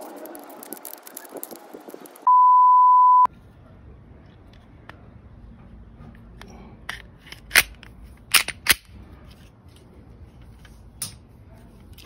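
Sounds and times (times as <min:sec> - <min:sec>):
pistol slide clicks and snaps: 0:06.9 - 0:08.9.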